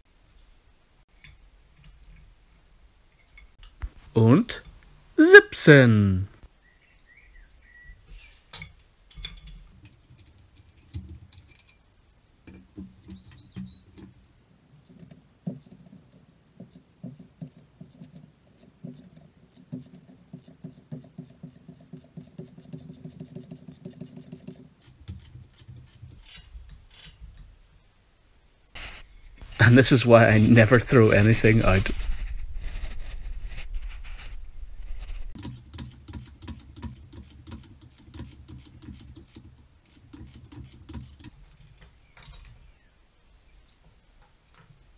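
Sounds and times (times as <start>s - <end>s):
hand tools clinking on metal: 8.6s - 11.9s.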